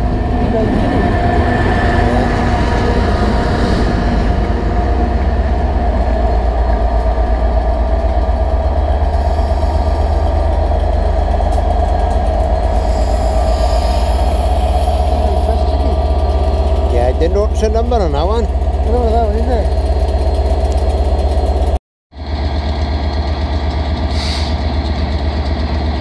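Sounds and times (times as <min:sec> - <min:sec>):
diesel locomotive engine whine: 0:00.0 - 0:26.0
track machine rolling past: 0:00.0 - 0:26.0.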